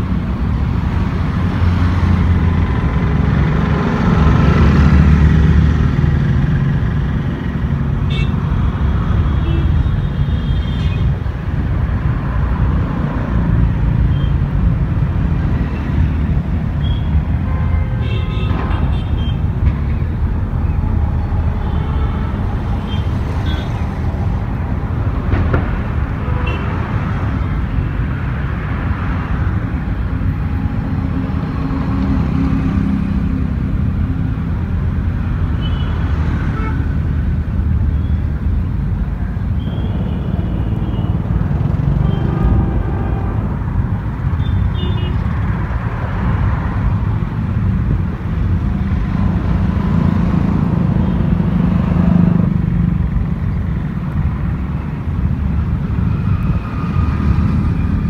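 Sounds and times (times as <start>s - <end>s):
cars and motorcycles passing: 0.0s - 58.0s.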